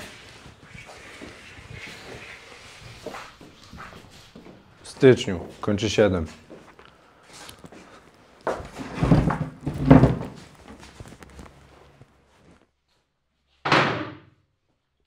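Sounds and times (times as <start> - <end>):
heavy wooden thuds and knocks: 8.6 - 10.5.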